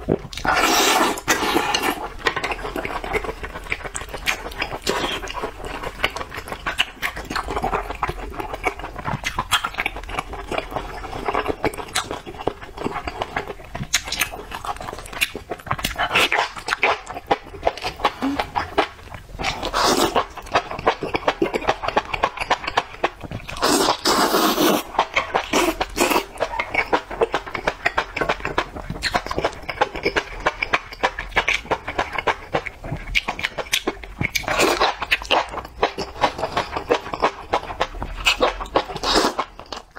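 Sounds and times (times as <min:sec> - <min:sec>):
wet chewing and smacking: 0:00.0 - 0:39.9
loud slurps: 0:00.4 - 0:02.0, 0:23.6 - 0:26.2.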